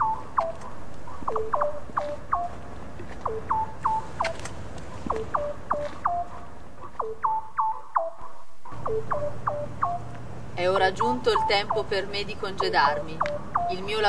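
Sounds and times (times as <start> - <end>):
electronic falling bleeps: 0.0 - 0.6, 1.3 - 2.5, 3.2 - 4.4, 5.1 - 6.3, 7.0 - 10.1, 10.8 - 14.0.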